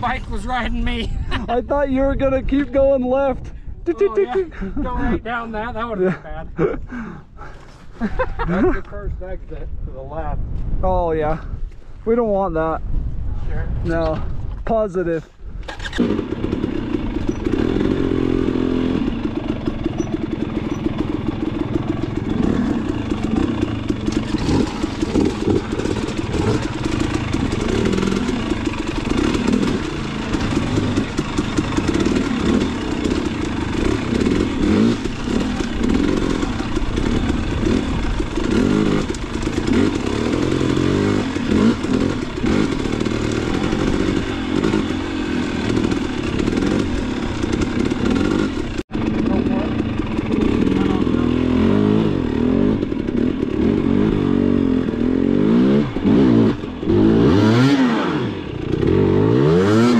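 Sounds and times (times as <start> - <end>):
dirt bike engine revving: 15.6 - 59.9.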